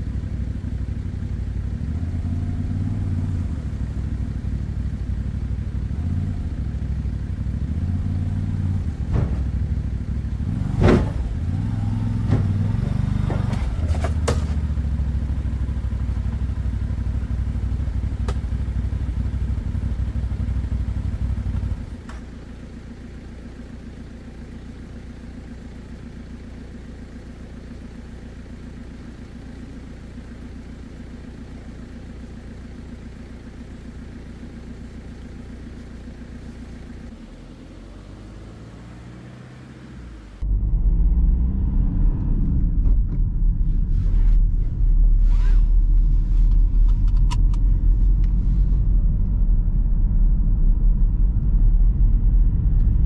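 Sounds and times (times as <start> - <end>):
atv engine running: 0.0 - 39.2
steady low hum: 40.3 - 53.0.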